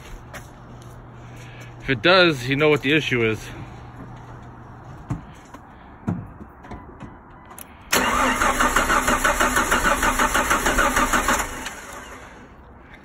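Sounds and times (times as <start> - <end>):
starter cranking engine: 7.9 - 12.5.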